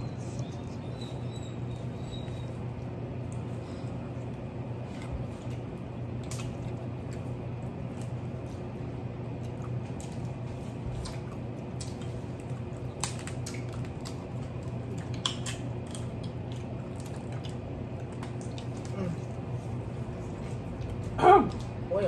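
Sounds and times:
chewing: 0.0 - 21.8
steady low hum: 0.0 - 22.0
wet squishing: 2.8 - 8.7, 9.3 - 21.0.

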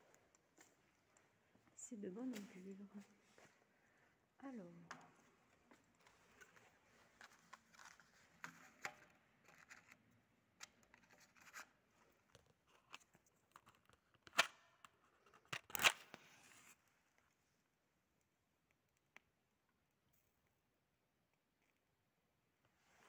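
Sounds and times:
handling rustling and clicks: 4.9 - 17.4.

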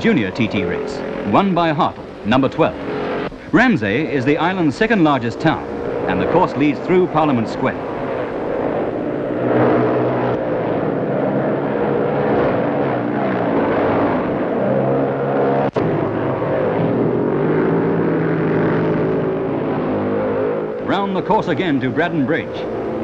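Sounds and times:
racing motorcycles passing: 0.0 - 23.0.

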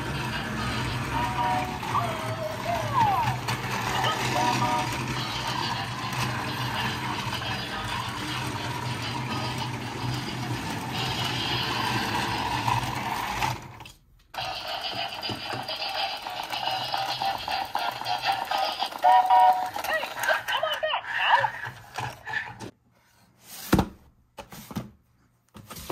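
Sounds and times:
electronic toy music: 0.0 - 13.0, 14.4 - 20.7
toy train motor humming: 0.0 - 13.8, 14.4 - 22.7.

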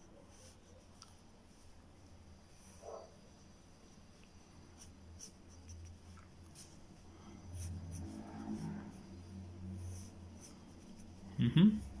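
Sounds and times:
pencil scratching on paper: 4.6 - 11.3.

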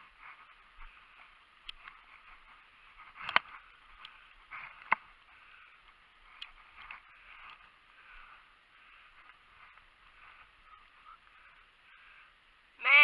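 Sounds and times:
footsteps on gravel: 6.2 - 11.5.

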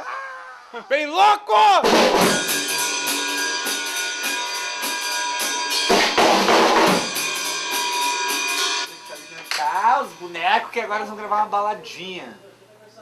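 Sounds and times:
rock music: 1.8 - 9.6
drum kit beat: 1.8 - 11.2
cymbals ringing: 2.1 - 11.8.

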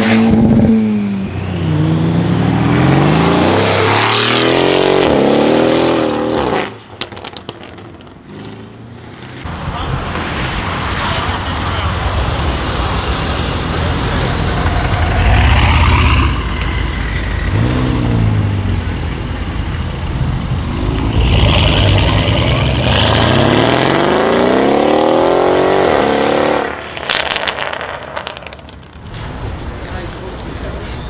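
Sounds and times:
car engine accelerating hard: 0.0 - 6.7, 10.0 - 28.6
exhaust crackles: 9.5 - 31.0.

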